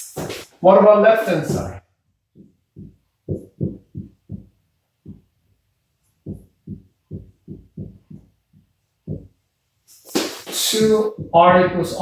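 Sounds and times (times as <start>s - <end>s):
marker tapping on whiteboard: 2.3s - 5.3s, 6.2s - 9.3s, 10.1s - 12.0s.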